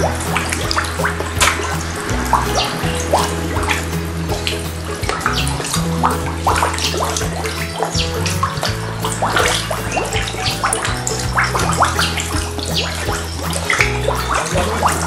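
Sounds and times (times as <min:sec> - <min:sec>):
background music low notes: 0:00.0 - 0:15.0
fish splashing at water surface: 0:00.0 - 0:15.0.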